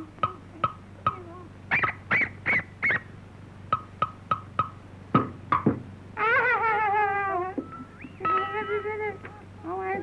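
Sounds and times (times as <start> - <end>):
high yelping squeals: 1.7 - 3.2, 7.7 - 9.4.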